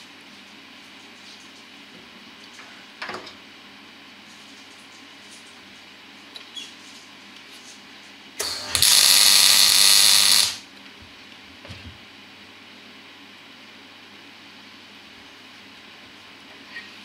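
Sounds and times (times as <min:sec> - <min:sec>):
arc welding hiss: 0:08.4 - 0:10.6.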